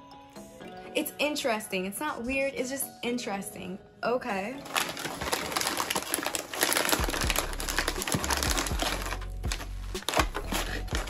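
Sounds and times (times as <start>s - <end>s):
chip bag crinkling: 4.6s - 11.0s.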